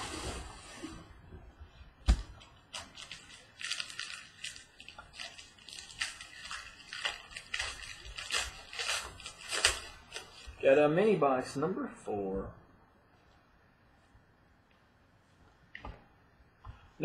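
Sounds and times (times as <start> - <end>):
plastic wrapping crinkling and tearing: 2.1 - 10.6.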